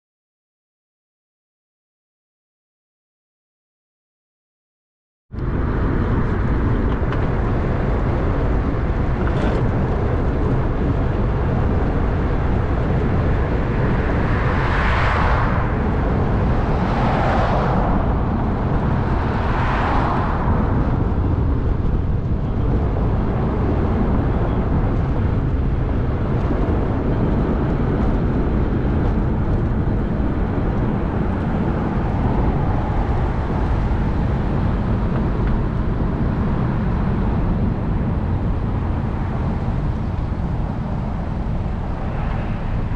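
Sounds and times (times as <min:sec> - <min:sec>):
wind and road noise: 0:05.3 - 0:42.9
vehicles whooshing past: 0:10.9 - 0:42.9.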